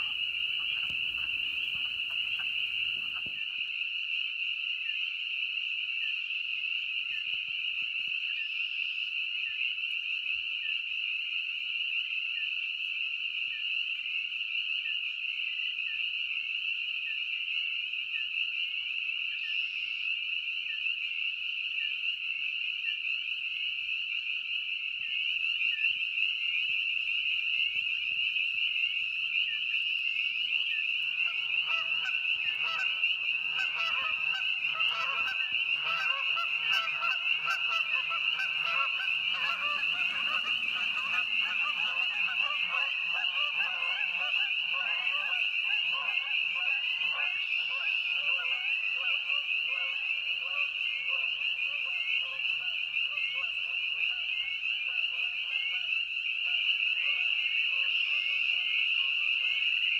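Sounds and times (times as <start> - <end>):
geese honking: 0.0 - 3.6, 30.2 - 59.6
spring peepers chorus: 0.0 - 59.9.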